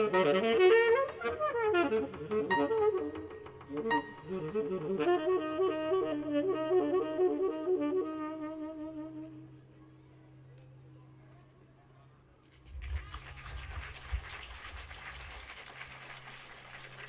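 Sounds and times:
saxophone playing: 0:00.0 - 0:09.6.

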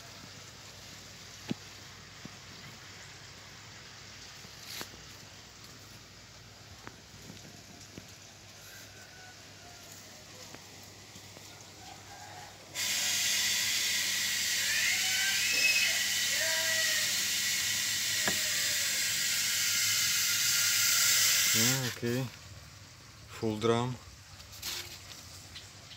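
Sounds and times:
water jets spraying hiss: 0:00.0 - 0:25.9.

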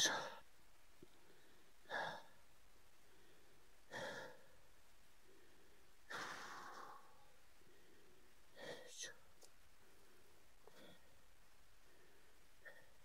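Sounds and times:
person breathing out hard: 0:03.0 - 0:04.6.

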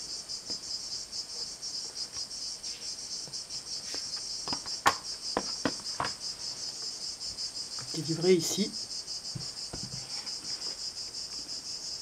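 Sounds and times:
insects chirring: 0:00.0 - 0:12.0
objects knocking on table: 0:04.4 - 0:06.2, 0:09.3 - 0:10.2.

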